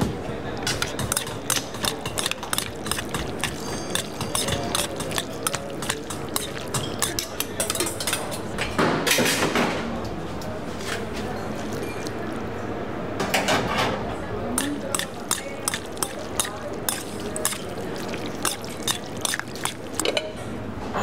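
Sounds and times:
metal spoon scraping steel bowl: 0.7s - 7.8s, 14.6s - 20.2s.

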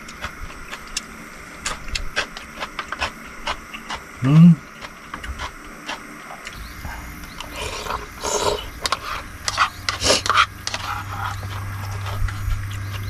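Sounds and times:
steady low hum: 0.0s - 13.0s
noodle slurping: 1.6s - 13.0s
utensils scraping: 7.3s - 13.0s.

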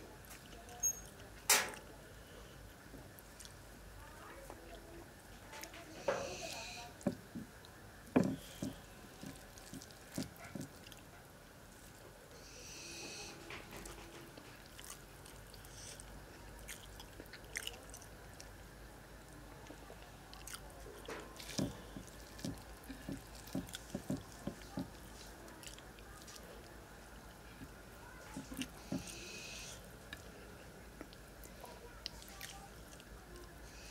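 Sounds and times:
fingers squishing food: 5.5s - 11.2s, 19.5s - 33.6s
chewing and mouth smacks: 8.4s - 11.3s, 13.8s - 18.6s, 19.6s - 26.7s.

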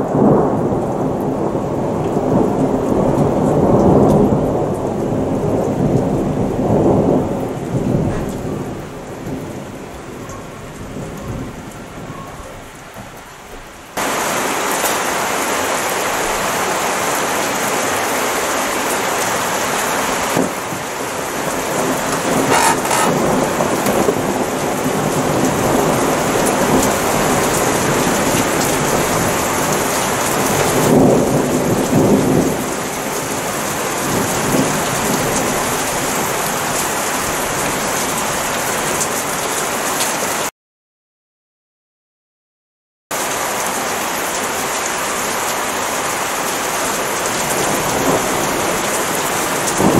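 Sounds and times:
heavy rain hissing: 11.4s - 36.1s
thunder rumbling: 20.0s - 33.4s.

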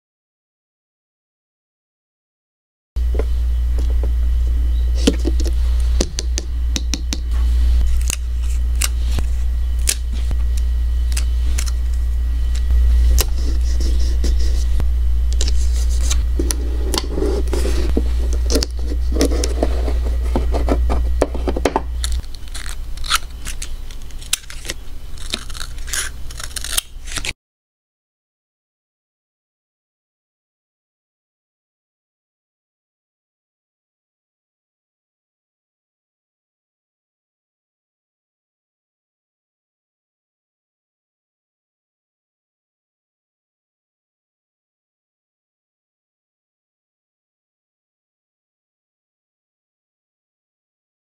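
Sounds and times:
steady low hum: 3.0s - 27.4s
paper rustling and scraping: 7.3s - 10.4s, 12.9s - 14.8s, 15.4s - 27.4s.

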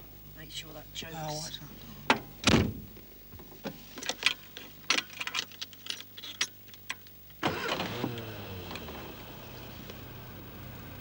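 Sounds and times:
thump: 2.1s - 2.9s
car engine starting and running: 7.4s - 11.0s.

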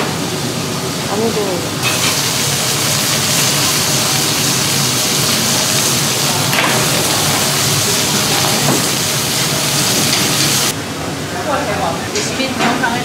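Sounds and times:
meat sizzling on a grill: 1.0s - 10.8s.

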